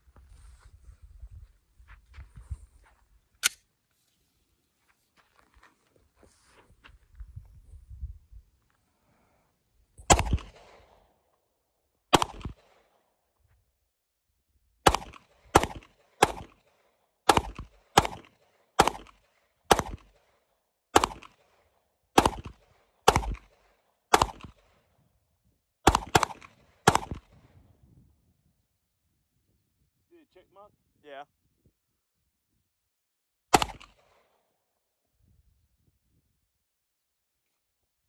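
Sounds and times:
pistol shots with echo: 10.1 - 11.1, 12.1 - 13.0, 14.8 - 20.4, 21.0 - 24.8, 25.8 - 27.6, 33.5 - 34.4.

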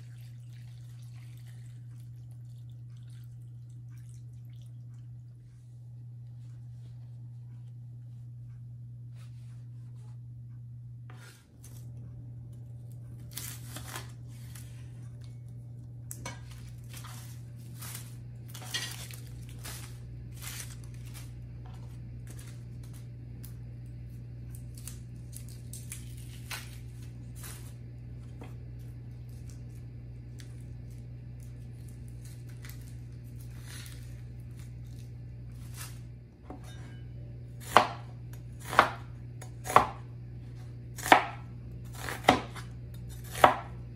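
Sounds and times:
low hum: 0.0 - 43.9
onion skins being peeled: 11.2 - 36.2, 37.5 - 43.9
cleaver chopping on cutting board: 37.6 - 40.0, 41.0 - 41.4, 42.0 - 43.7.

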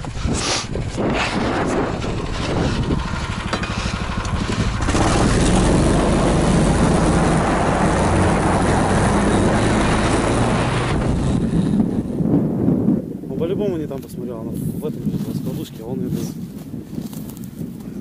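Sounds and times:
small engine of tracked ski-tow: 0.0 - 12.2.

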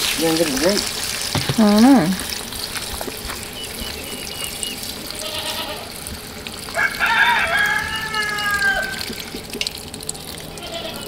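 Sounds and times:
rooster crowing: 6.7 - 9.3.

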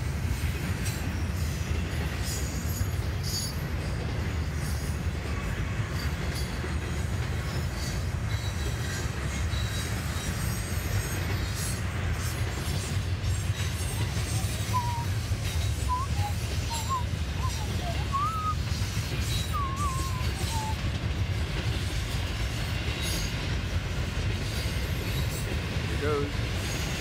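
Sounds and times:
freight train wheels rumbling on rail: 0.0 - 27.0
high wheel squeals: 7.4 - 20.8.

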